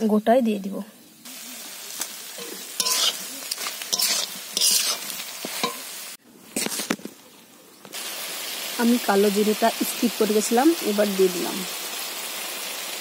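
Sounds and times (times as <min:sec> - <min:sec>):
pickle sizzling in pan: 0:01.1 - 0:13.0
metal spatula scraping pan: 0:02.4 - 0:03.3, 0:03.9 - 0:05.8.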